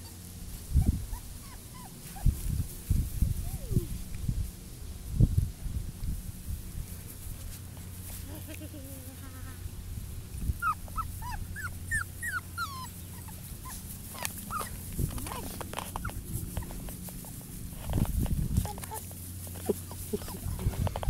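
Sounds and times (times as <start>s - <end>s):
puppies whimpering: 0.8s - 2.3s, 10.6s - 17.5s, 18.6s - 21.0s.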